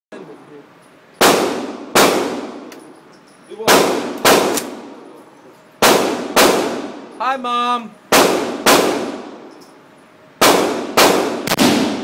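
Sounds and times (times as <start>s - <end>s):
loud gunshots echoing indoors: 1.2s - 2.6s, 3.6s - 4.9s, 5.8s - 7.0s, 8.1s - 9.4s, 10.4s - 12.0s.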